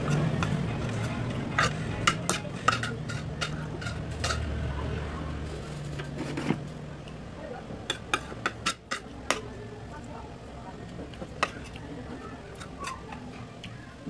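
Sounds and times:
dishes clinking in a sink: 1.6s - 4.4s.

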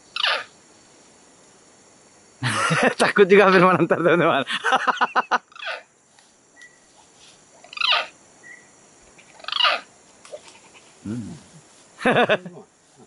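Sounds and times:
monkey distress screams: 0.2s - 0.5s, 5.5s - 5.9s, 7.7s - 8.2s, 9.4s - 9.9s.

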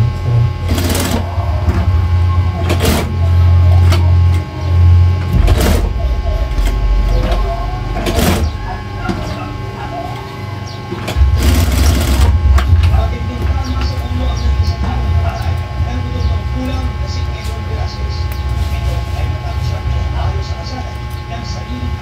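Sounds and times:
sewing machine motor hum: 0.0s - 12.8s.

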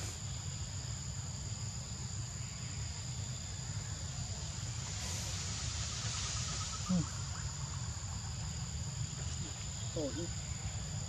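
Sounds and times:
high-pitched insect drone: 0.0s - 11.0s.

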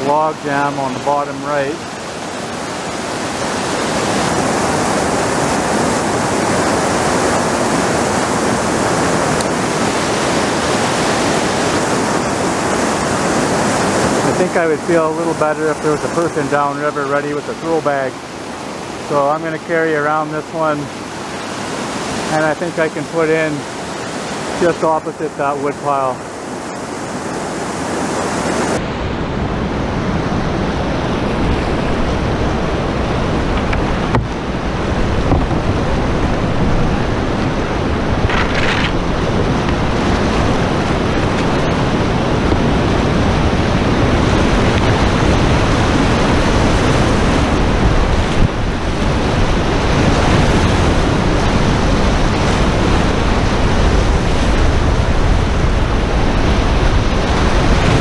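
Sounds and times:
whitewater rapids roaring: 0.0s - 58.0s.

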